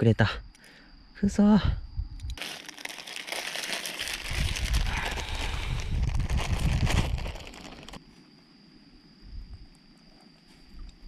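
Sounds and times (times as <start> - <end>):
plastic bag crinkling: 2.4 - 8.0.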